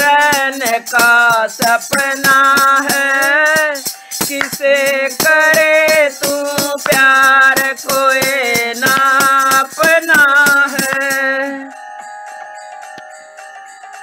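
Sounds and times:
high crisp percussion: 0.0s - 14.0s
drum strokes: 3.8s - 11.4s
melodic lead instrument: 10.8s - 14.0s.

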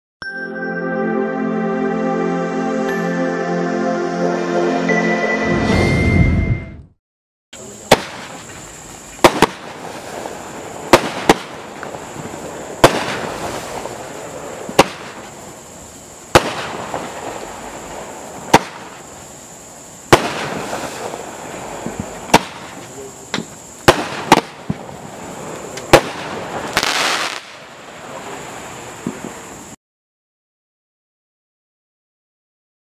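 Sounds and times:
firework bangs: 7.6s - 19.3s, 20.0s - 29.7s.

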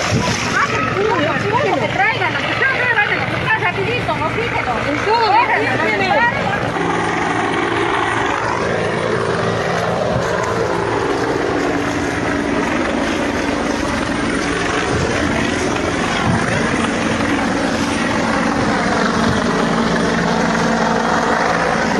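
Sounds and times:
wind blowing across microphone: 0.0s - 3.4s, 6.7s - 21.9s
helicopter rotor and engine: 0.0s - 21.9s.

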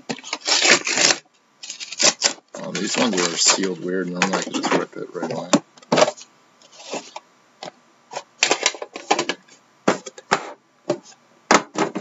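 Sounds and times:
scraping rustles: 0.1s - 7.2s.

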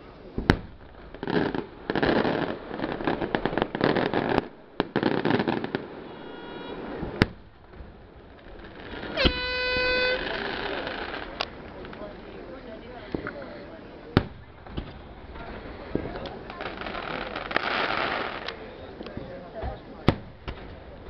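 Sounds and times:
fireworks bangs: 0.0s - 21.0s
fireworks crackling: 0.0s - 21.0s
horn sounding steady note: 6.1s - 6.9s, 9.1s - 10.3s.

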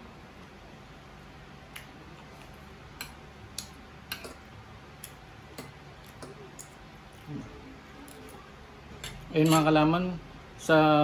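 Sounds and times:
low steady hum: 0.0s - 11.0s
cutlery scraping a ceramic plate: 9.0s - 9.7s.

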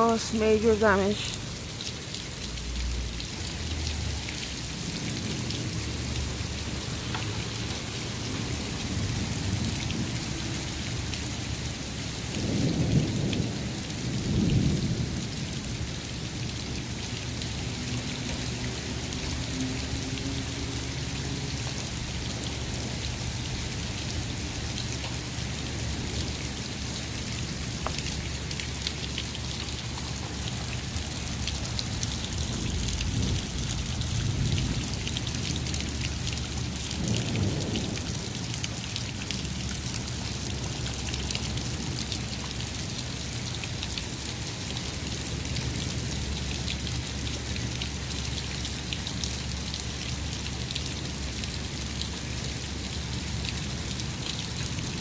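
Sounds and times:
heavy rain and hail falling: 0.0s - 55.0s
thunder rumble: 12.3s - 15.9s, 32.3s - 36.0s, 37.0s - 38.3s.

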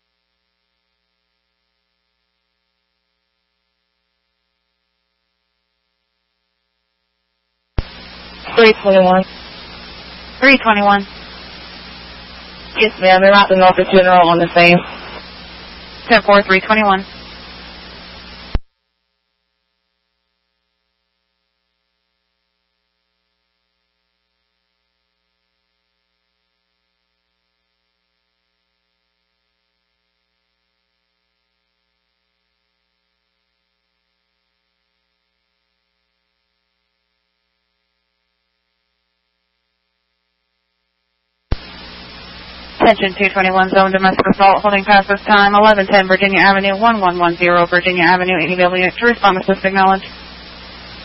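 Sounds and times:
faint electrical hum: 0.0s - 51.0s
radio static burst: 7.8s - 18.6s, 41.5s - 51.0s.

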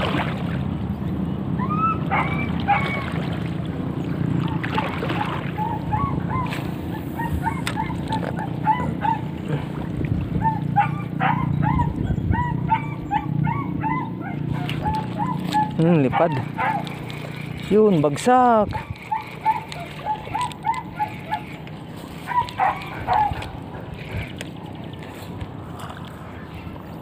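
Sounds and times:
dog-like yips: 1.6s - 3.2s, 5.2s - 9.2s, 10.4s - 16.9s, 18.7s - 21.5s, 22.3s - 23.6s.

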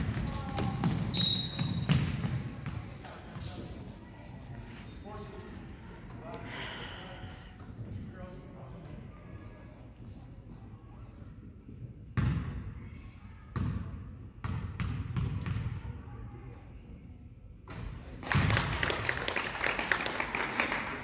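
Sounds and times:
spectators clapping and cheering: 18.2s - 21.0s.

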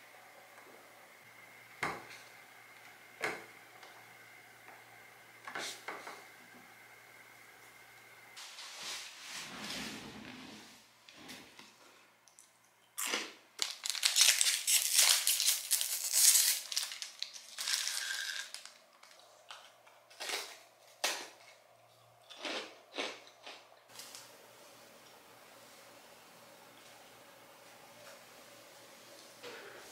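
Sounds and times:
plastic wrapper crinkling and tearing: 13.6s - 20.6s.

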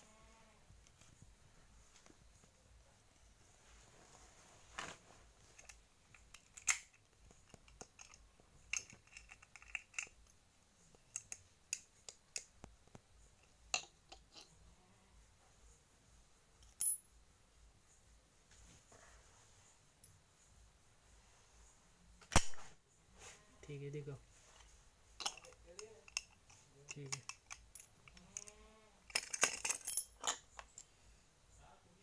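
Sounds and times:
sharp metallic clink: 16.6s - 17.1s, 25.2s - 30.9s.

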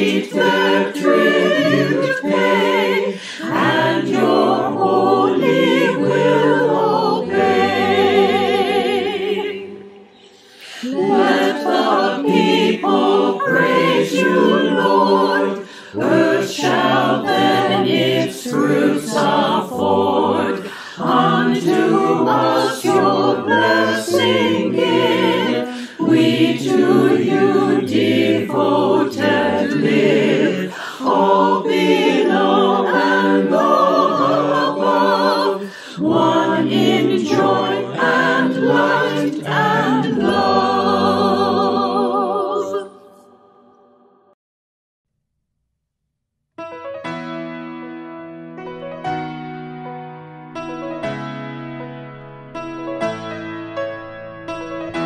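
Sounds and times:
choir singing a hymn: 0.0s - 43.6s.

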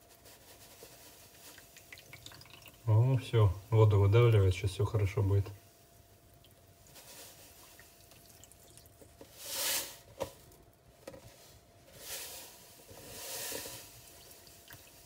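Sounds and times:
salt pouring: 0.8s - 5.8s, 6.4s - 10.1s, 12.0s - 15.0s.

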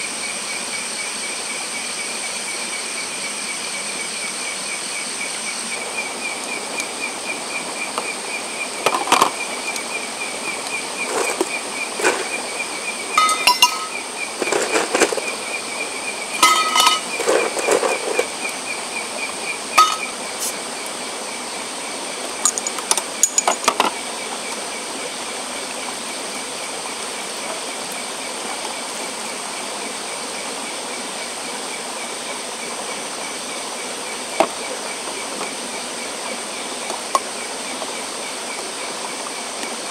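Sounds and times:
night insects trilling: 0.0s - 39.9s
glass bottles and tumbler clinking: 11.0s - 12.4s, 13.2s - 15.4s, 16.4s - 18.3s, 19.8s - 20.2s, 22.4s - 24.0s.

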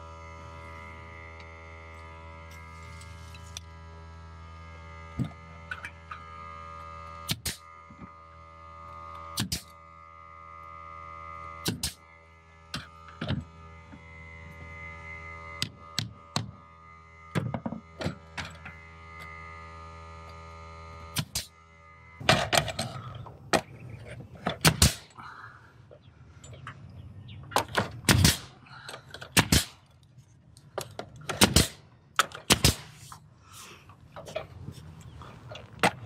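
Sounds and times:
nail gun shots: 7.3s - 7.6s, 9.4s - 9.7s, 11.6s - 12.0s, 21.1s - 21.5s, 24.6s - 25.1s, 27.6s - 28.6s, 29.3s - 29.8s, 31.2s - 33.1s.

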